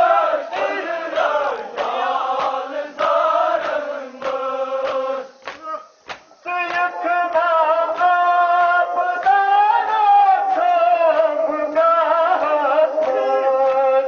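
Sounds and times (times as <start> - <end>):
men chanting a lament: 0.0 - 14.0
chest-beating slaps: 0.5 - 9.4.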